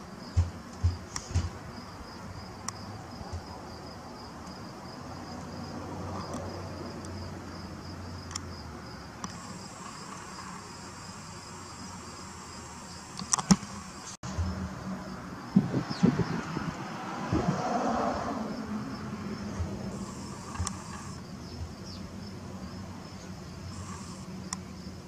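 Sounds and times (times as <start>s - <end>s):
sharp clicks: 13.2s - 13.7s, 20.3s - 21.2s.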